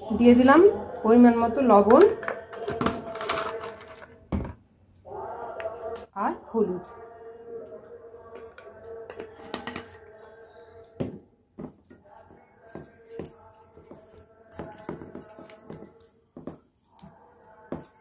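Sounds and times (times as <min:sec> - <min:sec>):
faint background music: 0:00.0 - 0:18.0.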